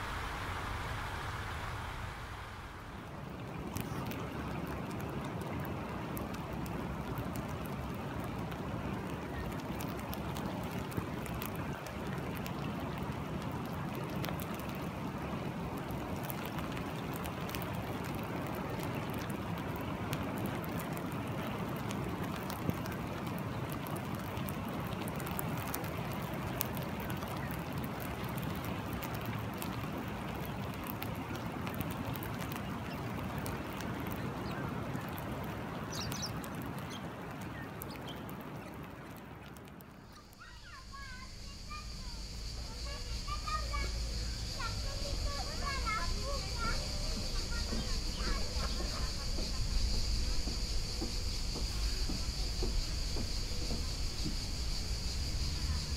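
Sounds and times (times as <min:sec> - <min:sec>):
river rushing over rock: 0:00.0 - 0:27.0
light rain on water: 0:00.0 - 0:55.9.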